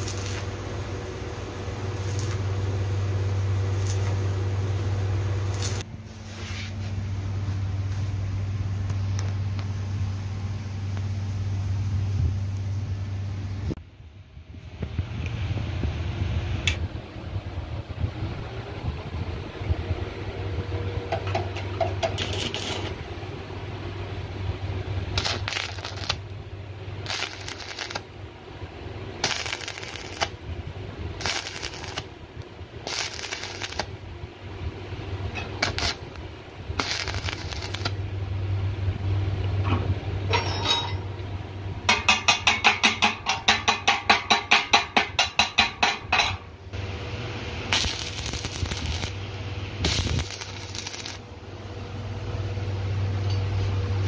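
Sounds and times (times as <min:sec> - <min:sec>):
arc welding crackling: 0:00.0 - 0:05.9, 0:08.8 - 0:09.8, 0:21.1 - 0:23.4, 0:25.0 - 0:28.3, 0:29.0 - 0:34.1, 0:35.2 - 0:38.1, 0:46.8 - 0:51.3
steady low hum: 0:00.0 - 0:54.0.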